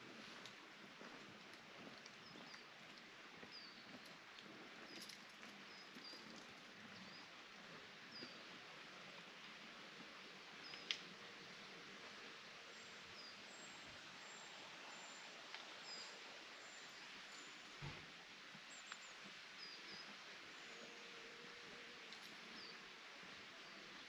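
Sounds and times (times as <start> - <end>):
small birds chirping: 1.8 - 9.1, 10.6 - 11.5, 12.7 - 18.0, 18.6 - 24.0.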